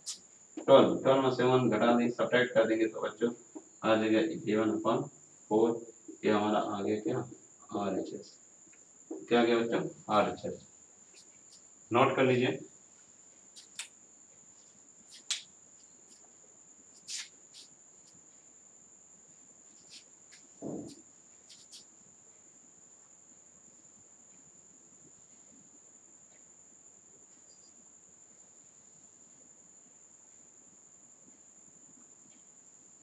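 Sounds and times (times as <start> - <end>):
short low thump: 20.6 - 21.0.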